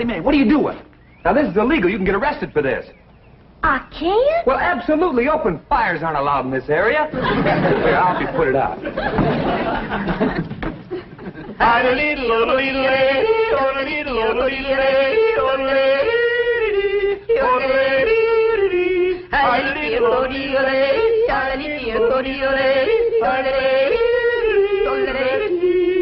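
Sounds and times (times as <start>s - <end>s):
man yodeling: 22.8s - 26.0s.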